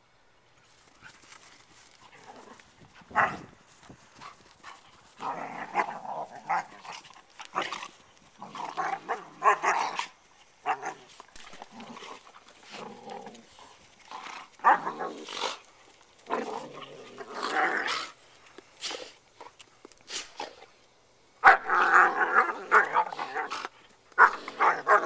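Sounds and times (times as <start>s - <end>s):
dogs barking: 3.1s - 3.5s.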